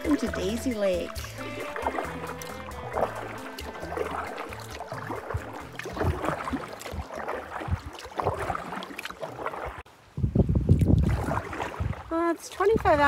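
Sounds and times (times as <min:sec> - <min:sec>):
canoe paddle splashing in water: 0:00.0 - 0:09.9, 0:10.7 - 0:12.8
water trickling off paddle: 0:00.0 - 0:09.9.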